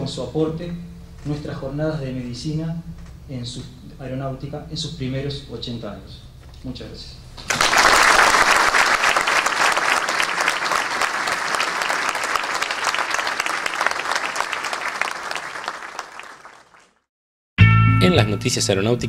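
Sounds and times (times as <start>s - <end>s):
audience applauding: 7.5s - 17.1s.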